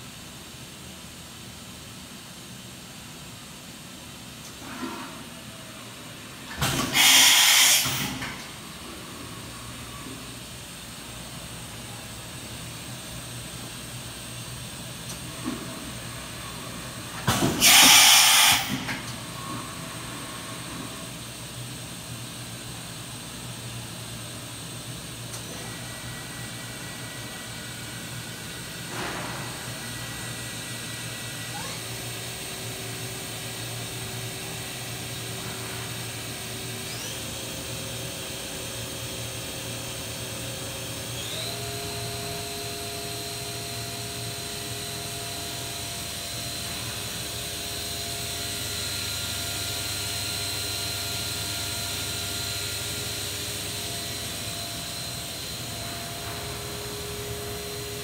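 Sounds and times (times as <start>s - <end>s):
machine spindle whining: 39.8s - 58.0s.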